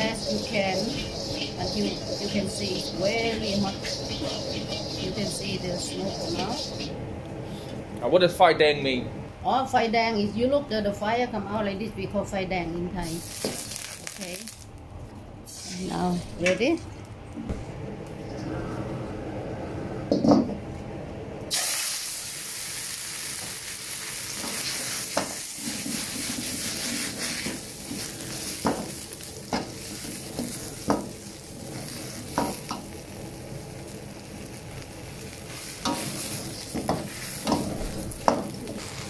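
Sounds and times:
metal spatula scraping a wok: 0:00.0 - 0:06.9
vegetables sizzling in hot oil: 0:00.0 - 0:06.9, 0:13.0 - 0:14.7, 0:21.5 - 0:39.0
loud knock: 0:17.4 - 0:17.8.

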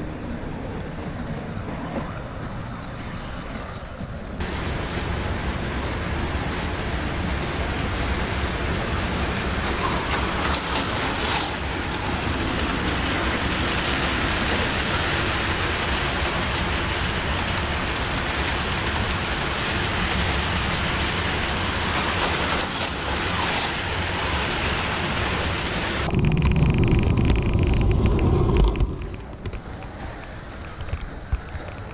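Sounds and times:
model train wheels clattering: 0:09.4 - 0:24.4
slot cars whizzing by: 0:09.8 - 0:13.5, 0:22.2 - 0:25.5.

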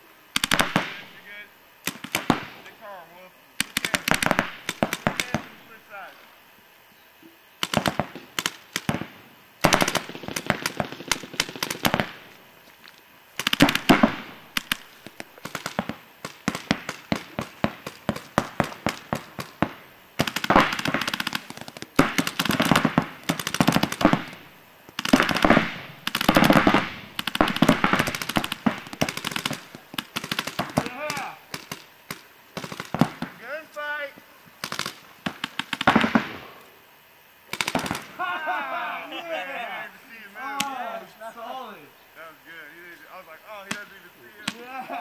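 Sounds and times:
paintball markers firing: 0:00.4 - 0:01.2, 0:01.8 - 0:02.7, 0:03.6 - 0:05.6, 0:07.6 - 0:12.3, 0:13.4 - 0:33.4, 0:34.6 - 0:36.5, 0:37.5 - 0:38.1, 0:43.6 - 0:44.6.

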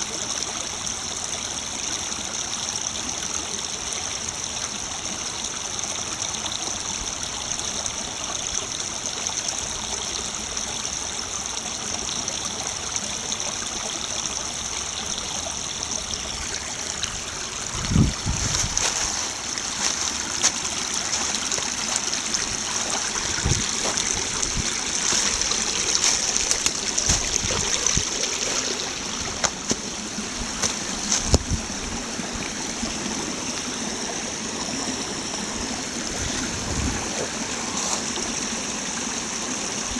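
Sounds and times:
stream babbling over gravel: 0:00.0 - 0:39.9
dull low thumps: 0:17.7 - 0:18.8, 0:22.4 - 0:28.6, 0:29.2 - 0:32.0.

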